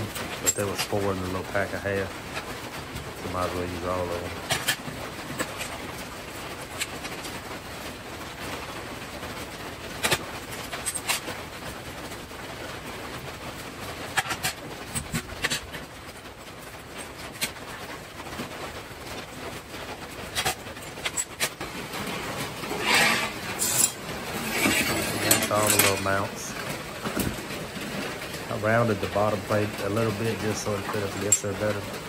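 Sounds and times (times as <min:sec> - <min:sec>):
metal tools clinking: 0:00.0 - 0:01.1, 0:10.0 - 0:11.2, 0:22.7 - 0:27.4, 0:28.8 - 0:32.0
metal clatter: 0:00.0 - 0:07.5, 0:09.4 - 0:12.7, 0:13.9 - 0:32.0
background hiss: 0:00.0 - 0:32.0.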